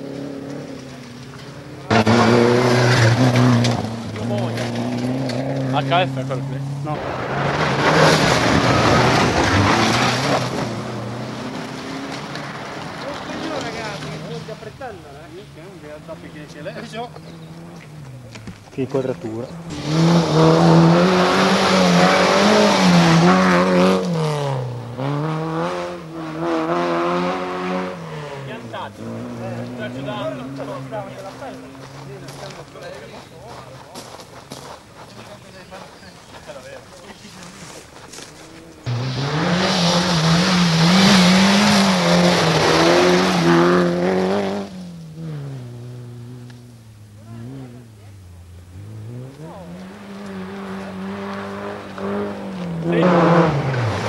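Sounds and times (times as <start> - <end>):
rally car engine at high revs: 0.0 - 14.7, 15.8 - 32.6, 38.8 - 54.0
tyres on gravel hiss: 31.3 - 40.3.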